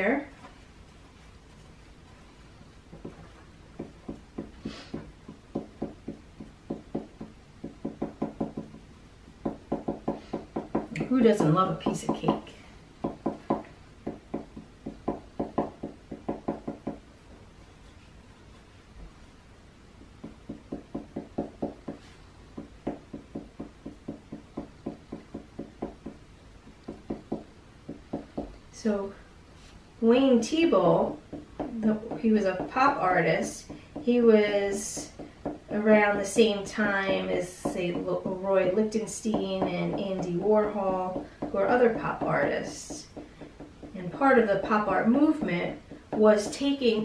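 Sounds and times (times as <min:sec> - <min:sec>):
marker tapping on paper: 0:02.9 - 0:08.8, 0:09.4 - 0:12.4, 0:13.0 - 0:17.0, 0:20.2 - 0:28.6, 0:31.1 - 0:32.9, 0:33.6 - 0:38.4, 0:39.1 - 0:44.0.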